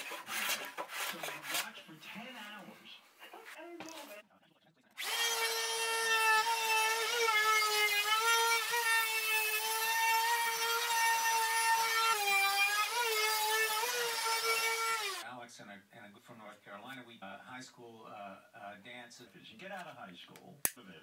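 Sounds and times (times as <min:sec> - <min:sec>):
router whining while cutting wood: 0:05.0 - 0:15.2.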